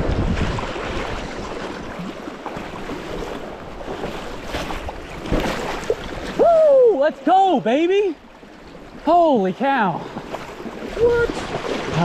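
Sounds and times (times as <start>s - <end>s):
river water rushing and splashing: 0.0s - 12.0s
man shouting excitedly: 6.4s - 7.7s.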